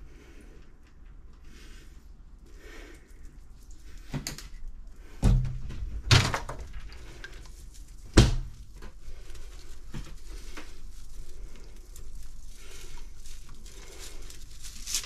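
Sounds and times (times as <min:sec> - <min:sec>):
faint rustling of bag: 0:06.8 - 0:15.0.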